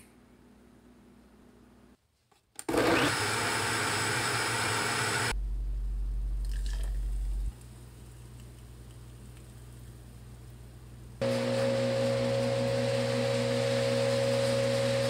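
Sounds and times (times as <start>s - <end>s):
blender running: 2.7s - 5.4s, 11.2s - 15.0s
steady low hum: 5.3s - 11.2s.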